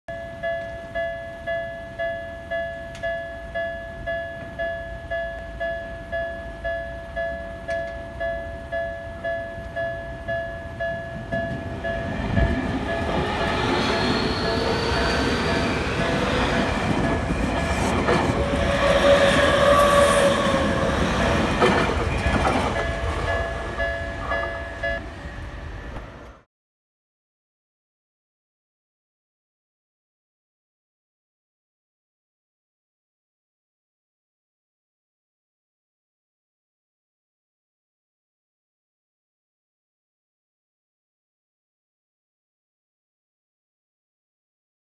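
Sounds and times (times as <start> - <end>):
level crossing warning bell: 0.1 - 25.1
train wheels rumbling on rails: 7.3 - 26.4
train motor whine: 11.2 - 26.4.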